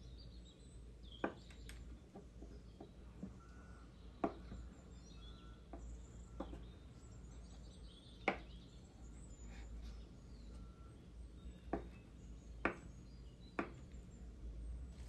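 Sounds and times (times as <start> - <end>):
knife chopping on wooden board: 4.2 - 4.5, 8.2 - 8.5, 11.7 - 12.0, 12.6 - 12.9, 13.6 - 13.8.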